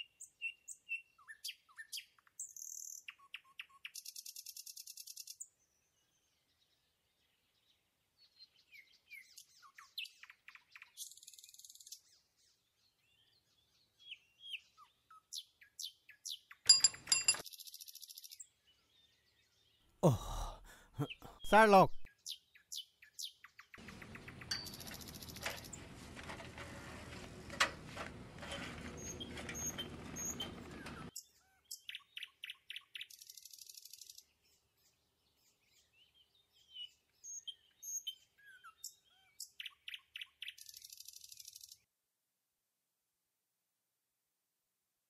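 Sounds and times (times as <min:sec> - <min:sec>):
small birds chirping: 0:00.0 - 0:25.8, 0:28.9 - 0:41.8.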